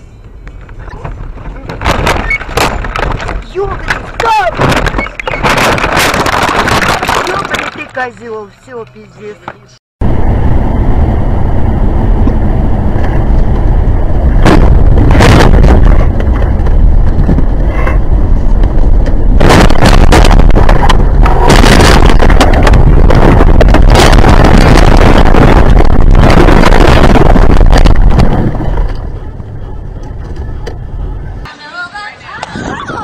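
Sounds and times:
hard impacts of car tumbling: 1.0 - 7.8.

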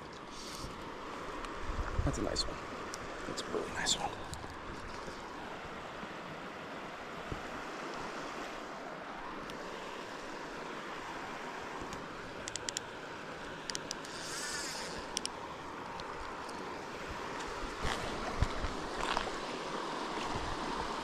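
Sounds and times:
river water rushing: 0.0 - 21.0
wind on microphone: 1.6 - 2.5, 17.0 - 21.0
sharp clicks: 12.4 - 12.9
brief hiss: 14.1 - 15.0.

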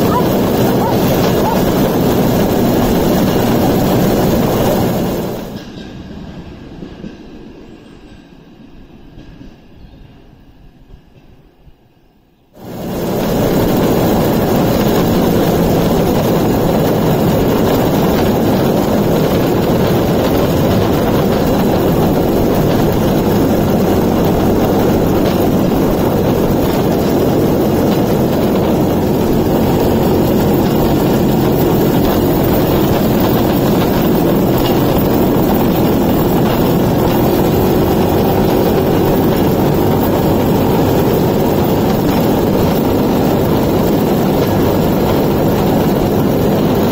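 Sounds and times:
two-stroke engine running: 0.0 - 5.6, 12.6 - 46.9
steel wheels rolling on rails: 0.0 - 8.4, 12.6 - 46.9.

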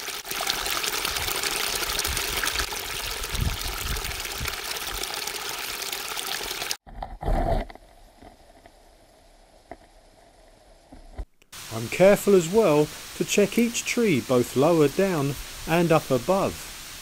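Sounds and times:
faint hiss: 10.2 - 17.0.

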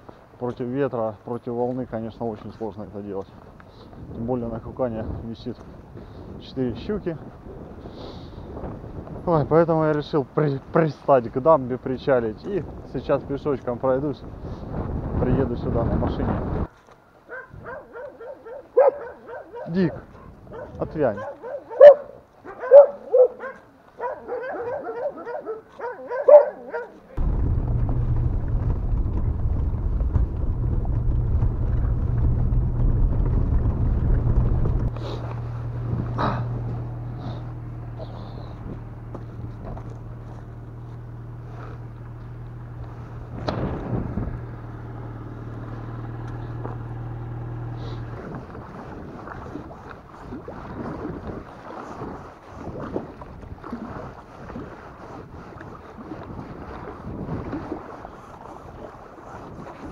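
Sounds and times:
wind on microphone: 3.3 - 9.7, 11.8 - 18.1, 18.8 - 23.2, 27.2 - 59.9
dog yelping and whining: 20.6 - 27.0
car engine and road noise: 27.2 - 48.6
small waves lapping: 34.4 - 59.9.

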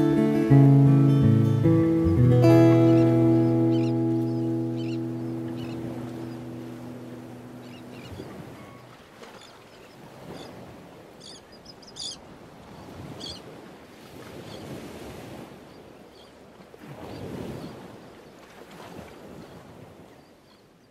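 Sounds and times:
ocean surf washing in: 0.0 - 9.0
high bird chirps: 2.0 - 6.5.

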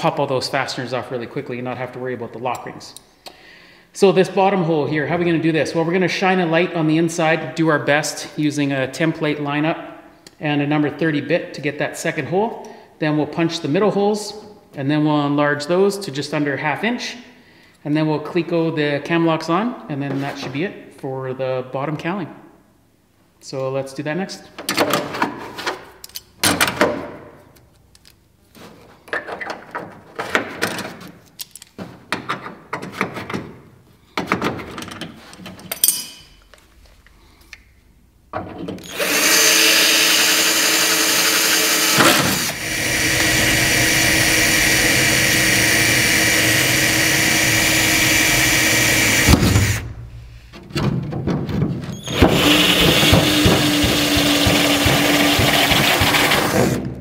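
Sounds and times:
tool handling clicks and knocks: 29.0 - 33.6, 34.2 - 37.7
cordless drill drilling: 38.8 - 49.8, 52.0 - 56.8.

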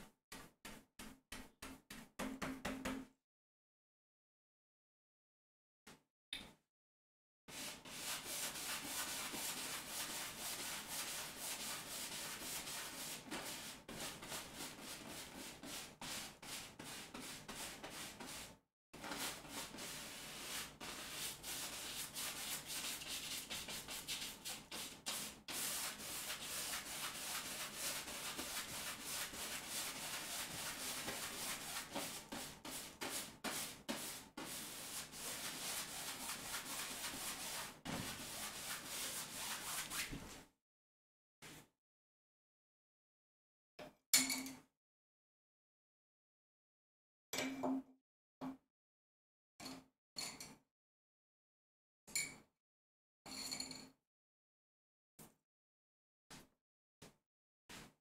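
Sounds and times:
paintbrush scrubbing on canvas: 7.5 - 18.4, 19.0 - 40.3.

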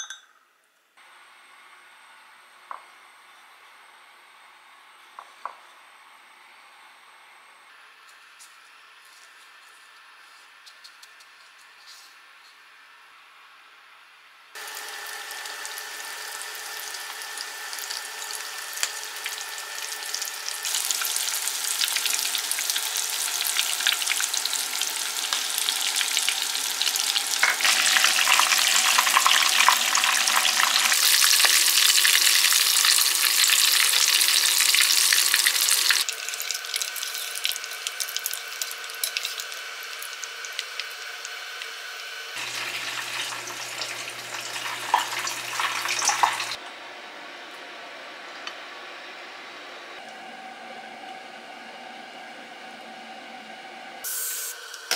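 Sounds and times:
oysters deep-frying in hot oil: 14.6 - 46.6.

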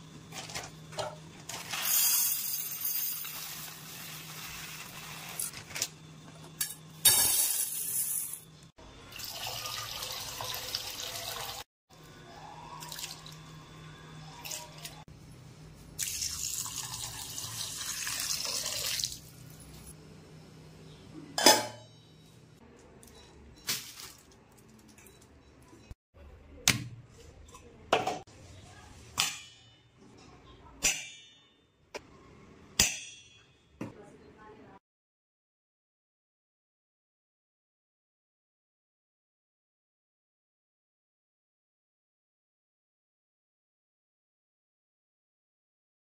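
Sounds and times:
water running from a tap: 9.2 - 11.7, 16.0 - 19.3.

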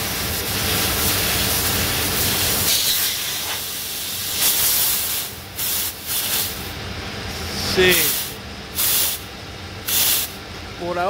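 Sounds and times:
gas hissing from valve: 0.0 - 6.7, 7.9 - 9.2, 9.8 - 10.4.

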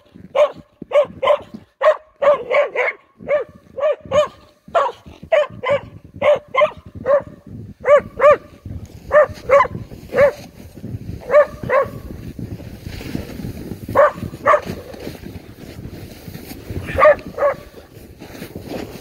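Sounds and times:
dog barking: 0.0 - 10.5, 11.2 - 12.2, 14.0 - 14.9, 16.8 - 17.8.

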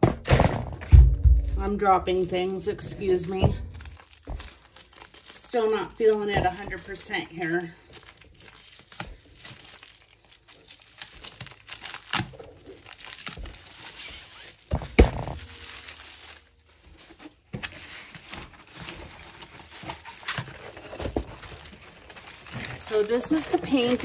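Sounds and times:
sharp knocks: 0.0 - 1.8
packaging and canvas crinkling: 1.1 - 24.0.

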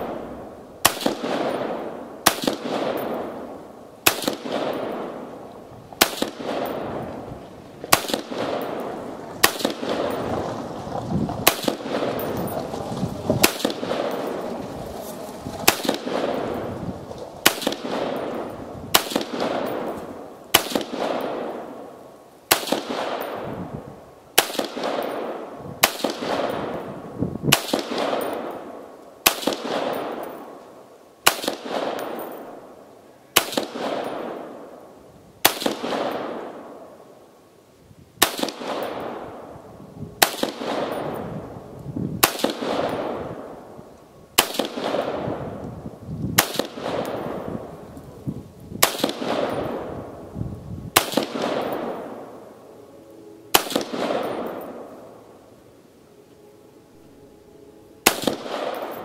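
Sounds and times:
rifle shots with echo: 0.0 - 10.6, 11.4 - 12.6, 13.4 - 14.6, 15.6 - 16.8, 17.4 - 34.8, 35.4 - 37.0, 38.2 - 41.6, 42.2 - 43.8, 44.4 - 45.6, 46.4 - 47.8, 48.8 - 50.3, 50.9 - 52.6, 53.5 - 55.3, 58.0 - 59.0.

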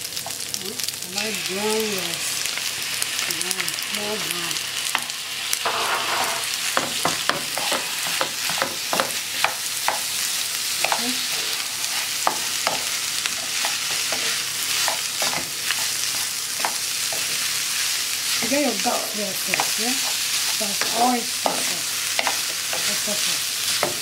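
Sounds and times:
rice sizzling in frying pan: 0.0 - 24.0
spatula scraping and knocking pan: 5.0 - 10.1, 10.8 - 17.4, 18.4 - 24.0.

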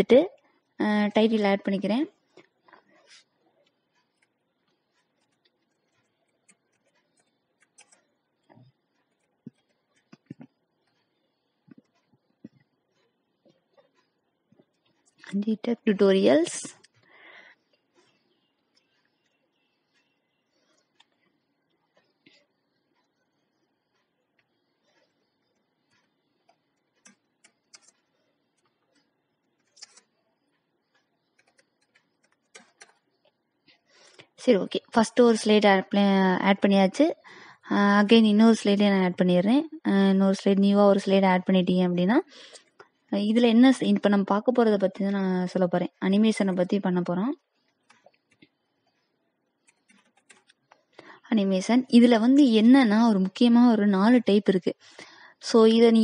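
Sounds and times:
computer keyboard keystrokes: 5.2 - 8.1, 26.8 - 28.1, 29.6 - 30.2, 31.0 - 33.0, 49.6 - 50.7.

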